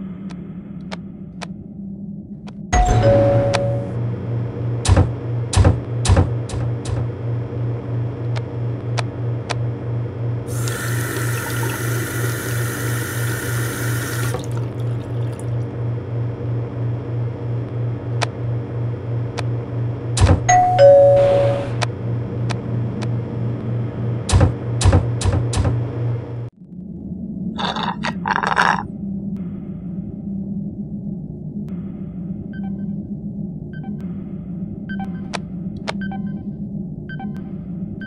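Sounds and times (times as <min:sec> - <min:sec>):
pulsing low hum: 0:00.0 - 0:10.7, 0:12.4 - 0:20.5, 0:21.7 - 0:38.0
two-note ding-dong chime: 0:02.8 - 0:04.0, 0:20.5 - 0:21.8
drink pouring into a cup: 0:10.5 - 0:15.7.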